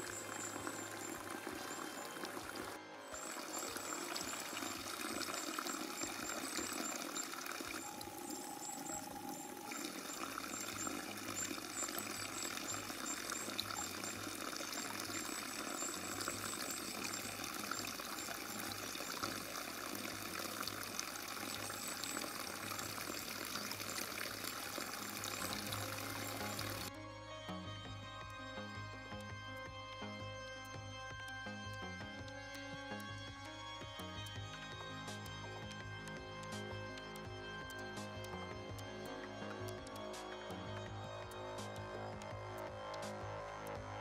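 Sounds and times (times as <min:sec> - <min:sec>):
water pouring and splashing: 0:00.0 - 0:26.9.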